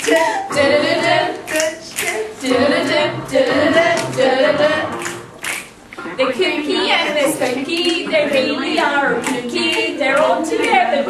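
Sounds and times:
women singing unaccompanied: 0.0s - 5.1s, 6.2s - 11.0s
hand claps: 1.0s - 2.2s, 3.8s - 4.3s, 4.9s - 5.8s, 7.7s - 10.8s.

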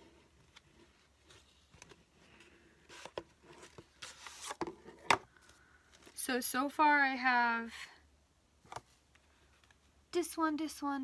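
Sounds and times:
cardboard and paper rustling: 0.0s - 6.2s.

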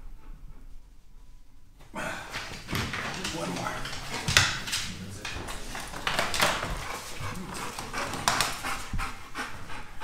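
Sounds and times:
dog panting: 5.4s - 10.0s.

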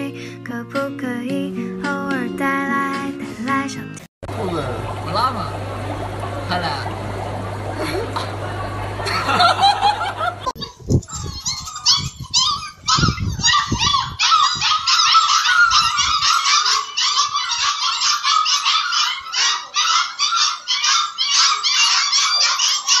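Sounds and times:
puppies yelping and squealing: 10.5s - 23.0s.

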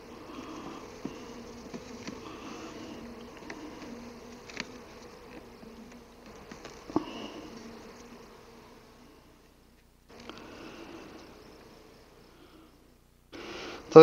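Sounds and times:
honeybees buzzing: 0.0s - 14.0s
light clicks of hive frame: 0.8s - 2.4s, 3.0s - 8.4s.

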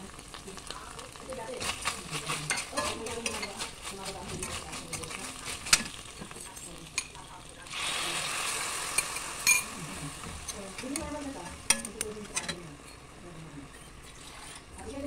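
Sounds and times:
meat sizzling in a wok: 0.0s - 15.0s
metal tongs scraping a pan: 1.6s - 7.2s, 8.5s - 13.1s, 13.7s - 14.7s.

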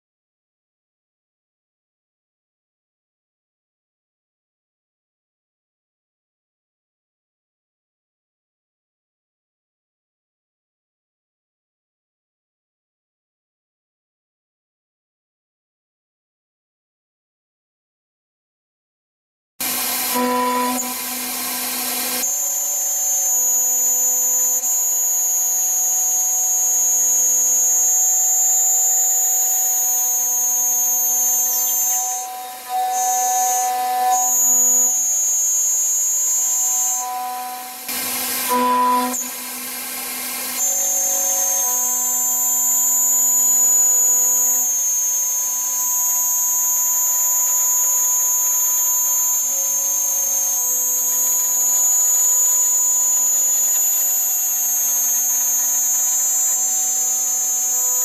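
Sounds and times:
milling spindle high-pitched whine: 19.6s - 58.0s.

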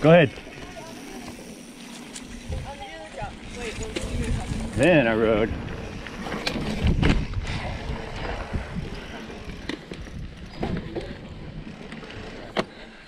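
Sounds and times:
bike rattles and knocks: 0.0s - 13.0s
bike tyre rumble on dirt: 0.0s - 13.0s
wind buffeting microphone: 2.3s - 12.2s.

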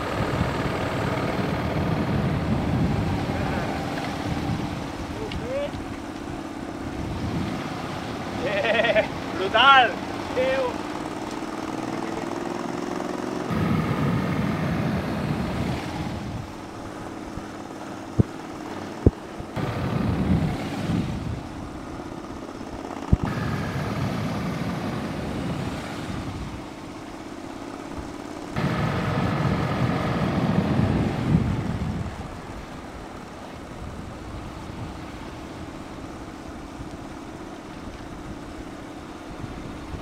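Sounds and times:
wind on microphone: 0.0s - 12.4s, 13.4s - 27.1s, 27.9s - 40.0s
vehicle engine running: 0.0s - 40.0s.

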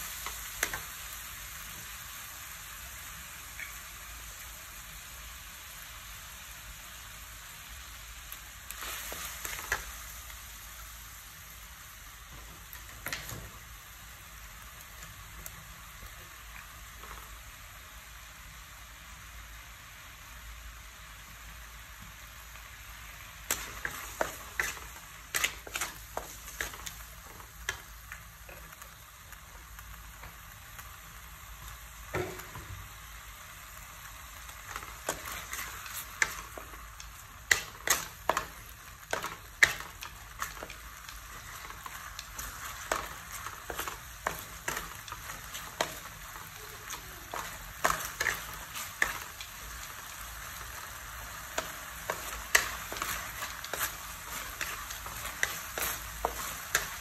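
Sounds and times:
meat sizzling in a wok: 0.0s - 57.0s
wooden spatula scraping a pan: 23.5s - 28.8s, 34.6s - 49.9s, 51.4s - 57.0s.

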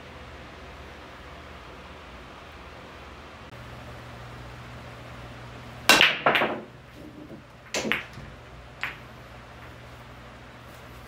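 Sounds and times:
low fan hum: 0.0s - 11.0s
pool balls clacking: 5.8s - 9.8s
cue ball cracking into balls: 5.9s - 9.8s.

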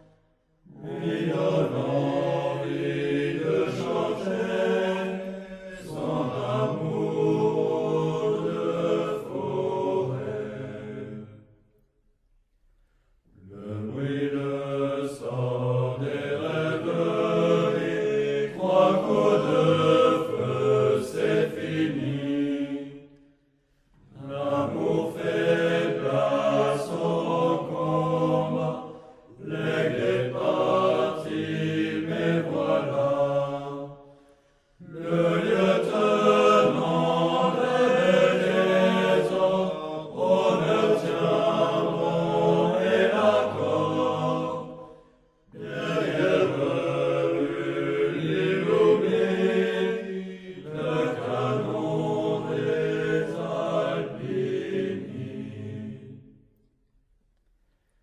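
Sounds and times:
low chanting voices: 0.0s - 56.9s.

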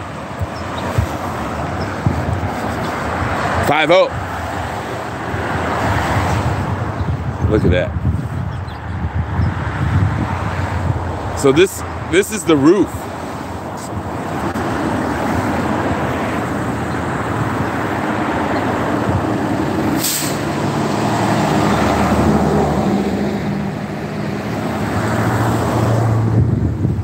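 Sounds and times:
short sharp hiss: 20.0s - 20.4s.

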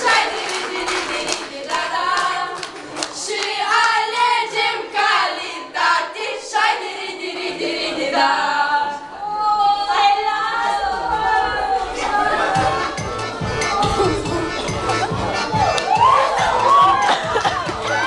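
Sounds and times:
hand claps: 0.0s - 4.0s, 15.7s - 18.0s
girls singing together: 0.0s - 18.0s.

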